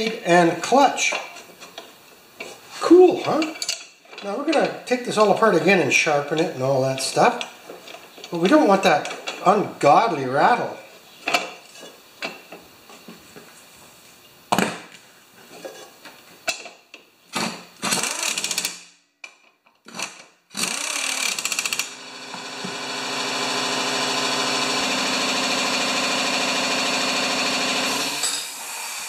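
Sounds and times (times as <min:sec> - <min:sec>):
impact wrench hammering: 0:17.8 - 0:18.8, 0:20.6 - 0:28.4.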